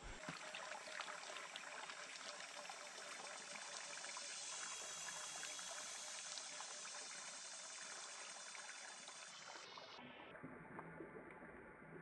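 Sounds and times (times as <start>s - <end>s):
water splashing from hose: 0.1s - 9.7s.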